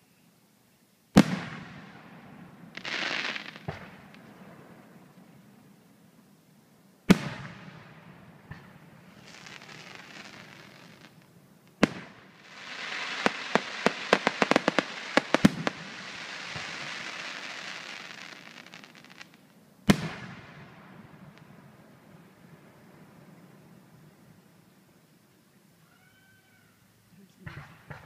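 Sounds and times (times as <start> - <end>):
sharp firework cracks: 1.1 - 5.4, 7.0 - 22.4
firework hiss: 1.2 - 5.4, 7.1 - 24.2
firework shells bursting: 8.4 - 20.3.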